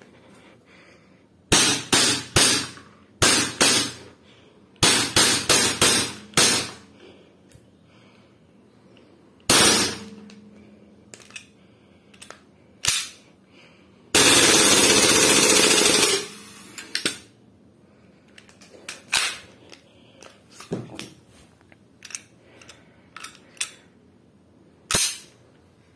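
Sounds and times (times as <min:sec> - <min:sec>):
airsoft pistol full-auto burst: 0:01.5 - 0:04.0, 0:09.5 - 0:10.1, 0:14.2 - 0:16.6
clicks of pistol being handled: 0:11.1 - 0:11.5, 0:12.1 - 0:13.3, 0:18.3 - 0:21.2, 0:22.0 - 0:23.8.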